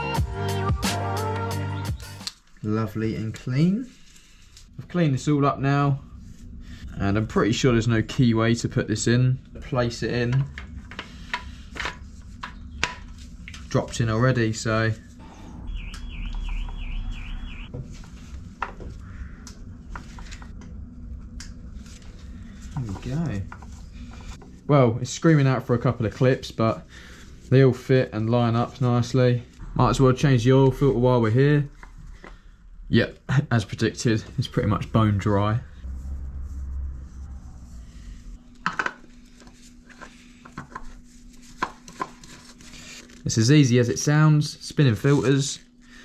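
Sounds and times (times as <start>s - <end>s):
steady low hum: 2.3s - 46.0s
high warbling chirp: 14.9s - 17.7s, 29.6s - 33.5s.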